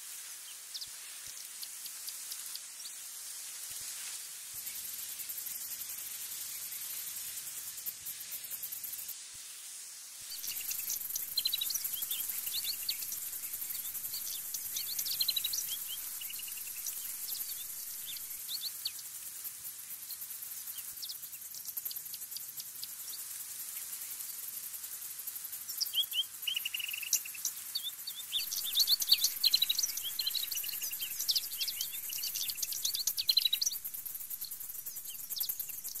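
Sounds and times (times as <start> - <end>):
high-pitched insect buzz: 3.7 - 9.2, 10.2 - 36.0
songbirds chirping and singing: 10.3 - 18.9, 25.7 - 36.0.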